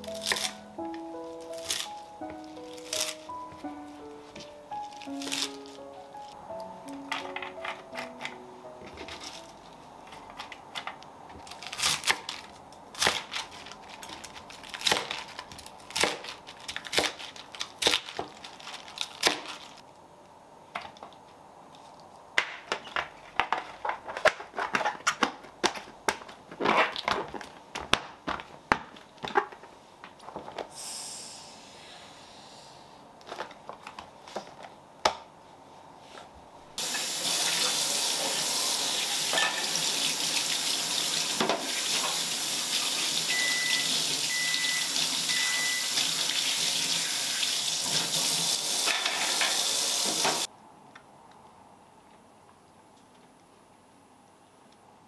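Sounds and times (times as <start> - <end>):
tap water running into sink: 36.8 - 44.2.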